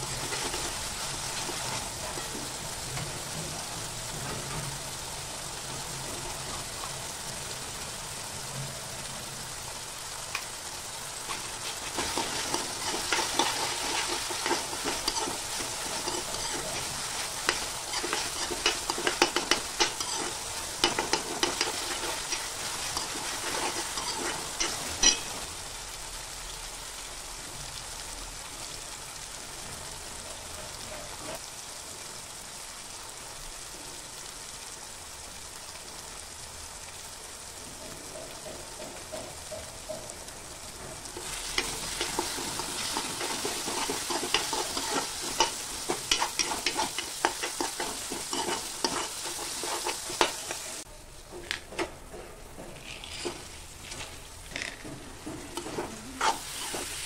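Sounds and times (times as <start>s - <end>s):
sauce sizzling in a pan: 0.0s - 57.0s
spoon scraping a metal pan: 11.3s - 25.4s, 41.2s - 50.7s, 52.7s - 57.0s.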